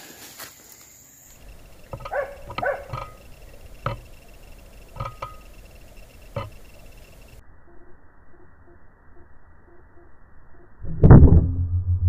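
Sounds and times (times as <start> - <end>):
animal barking calls: 1.4 - 7.4.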